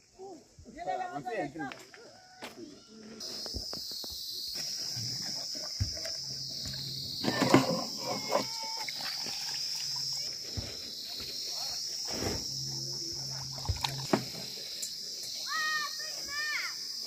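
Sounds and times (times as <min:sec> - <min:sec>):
high-pitched insect drone: 0:02.2 - 0:17.0
low hum: 0:12.1 - 0:15.2.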